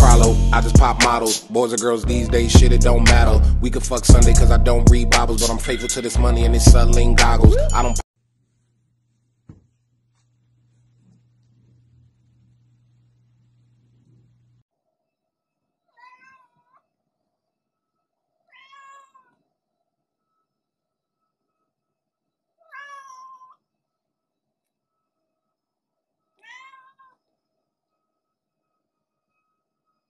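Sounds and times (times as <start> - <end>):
cat meowing: 15.9 - 16.8, 18.4 - 19.4, 22.6 - 23.6, 26.4 - 27.2.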